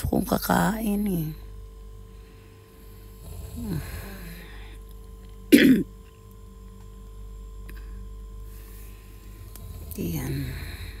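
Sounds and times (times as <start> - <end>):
low hum: 0.0 - 11.0
woman coughing: 5.5 - 6.0.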